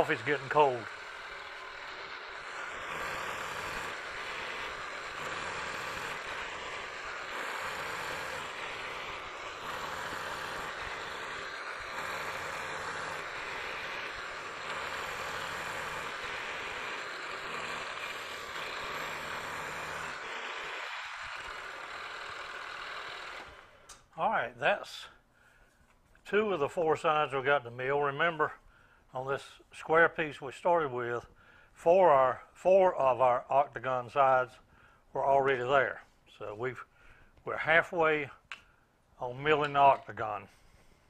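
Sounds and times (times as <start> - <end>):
milling machine cutting metal: 0.0 - 24.0
motor and spindle hum: 0.0 - 24.0.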